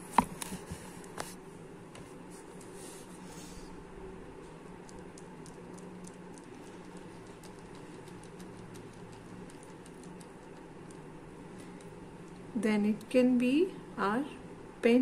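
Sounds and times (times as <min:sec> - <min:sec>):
steady low hum: 0:00.0 - 0:15.0
small clicks and ticks: 0:04.8 - 0:12.5.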